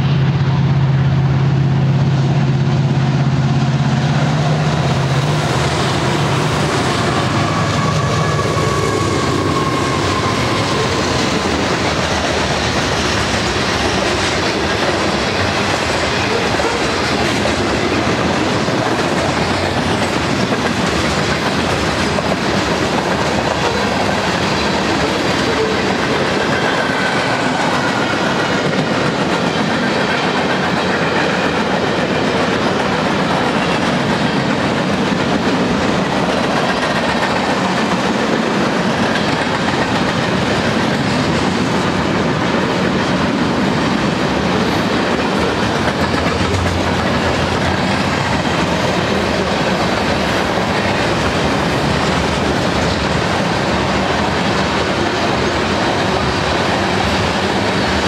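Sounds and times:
diesel locomotive engines droning: 0.0s - 58.0s
freight cars rumbling: 0.0s - 58.0s
wheels clacking over rail joints: 3.8s - 58.0s
faint high wheel squeal: 7.4s - 11.1s.

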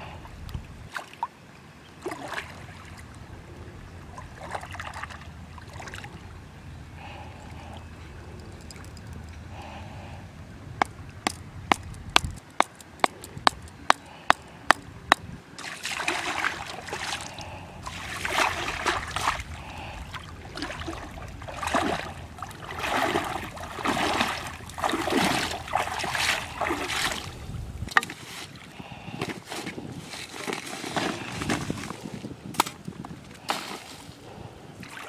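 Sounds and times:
water splashing and sloshing: 0.0s - 35.0s
hammer knocking wooden stake: 10.8s - 15.3s.

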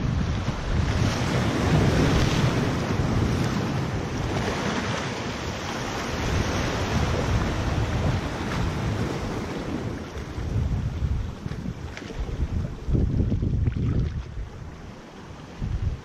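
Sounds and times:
waves splashing against rocks: 0.0s - 16.0s
wind buffeting microphone: 0.0s - 16.0s.

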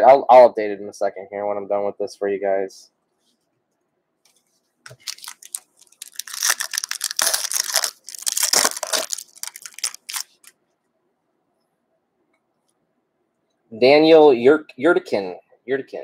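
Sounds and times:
foil wrapper tearing and crinkling: 4.9s - 10.5s.

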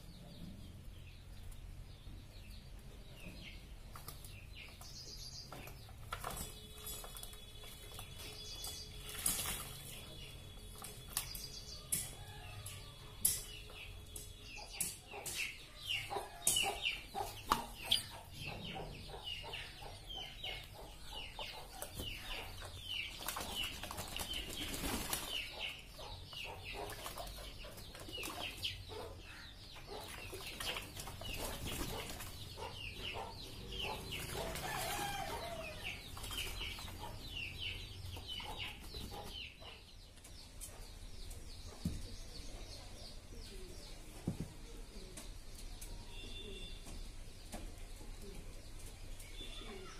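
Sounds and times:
birds chirping: 0.0s - 49.9s
pigeons flapping and splashing: 5.6s - 11.4s, 21.8s - 25.7s, 26.6s - 28.8s, 29.8s - 32.6s, 34.1s - 37.0s.

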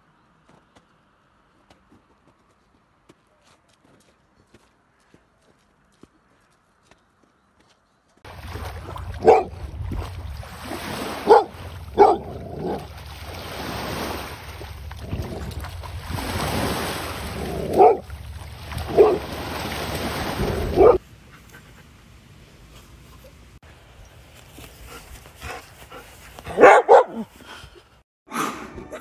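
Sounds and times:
waves washing on shore: 8.3s - 21.0s
dog barking sharply: 9.2s - 9.6s, 11.2s - 12.8s, 17.7s - 18.1s, 18.9s - 19.3s, 20.7s - 21.0s, 26.5s - 27.2s.

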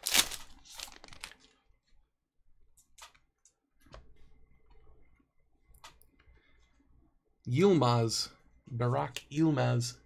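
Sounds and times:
foil wrapper crinkle: 0.0s - 1.5s.

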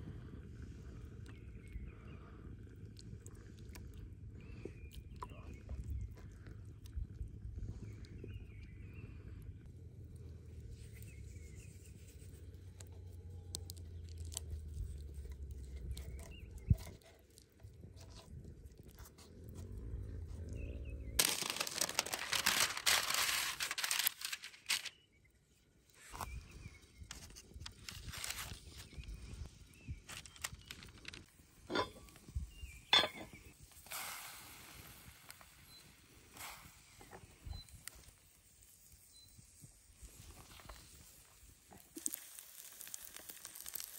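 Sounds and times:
light taps and parchment rustles: 21.2s - 24.9s, 30.0s - 32.2s
metal clinking on cast iron: 31.7s - 32.1s, 32.9s - 33.4s
brief hiss: 33.8s - 35.8s.

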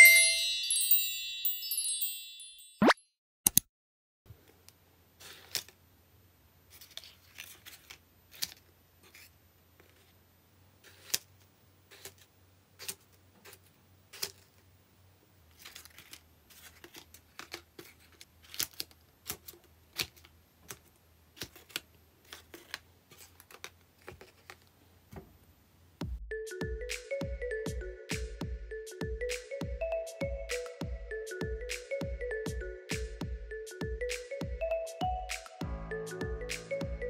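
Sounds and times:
paper clicks: 15.5s - 24.7s.

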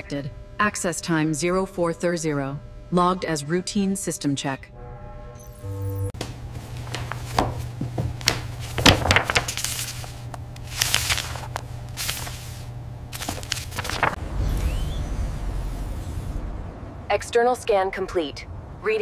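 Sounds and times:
steady low hum: 0.0s - 4.9s, 5.9s - 18.8s
paper pages rustling: 6.2s - 14.2s.

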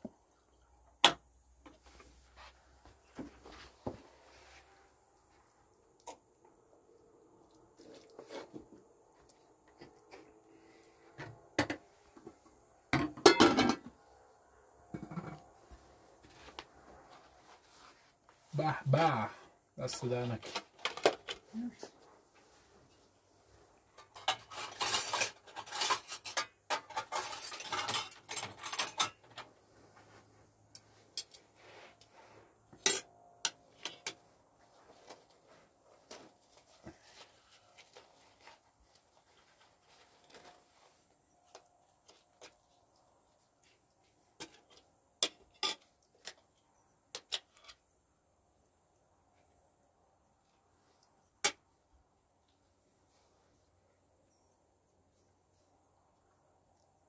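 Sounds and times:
cutlery clinking on metal tray: 13.0s - 13.9s, 24.0s - 29.5s, 32.8s - 33.1s, 45.2s - 45.9s
crinkly rustling: 34.6s - 44.8s.

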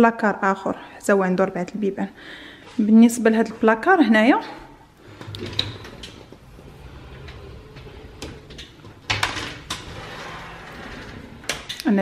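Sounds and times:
sliding doors rattling on track: 5.4s - 11.8s.

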